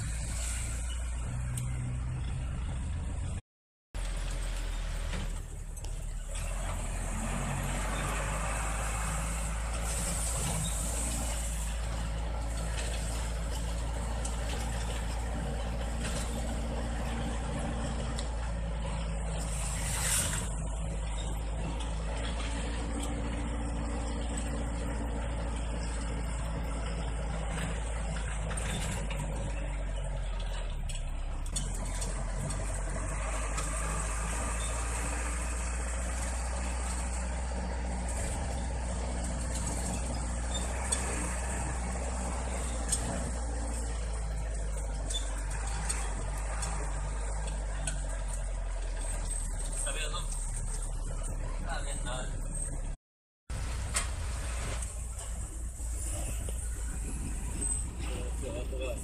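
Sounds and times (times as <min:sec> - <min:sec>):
truck engine running: 0:00.0 - 0:03.4, 0:04.0 - 0:59.0.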